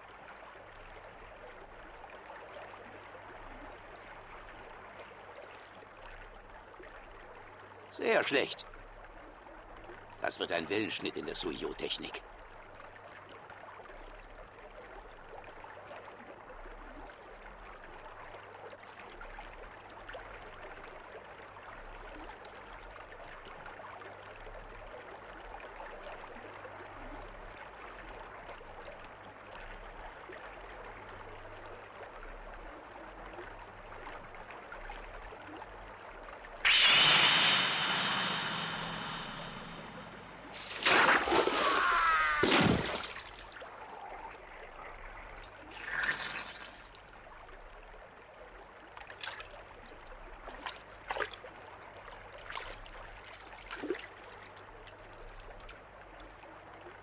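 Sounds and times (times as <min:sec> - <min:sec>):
loud ringing sound: 0:36.7 - 0:40.7.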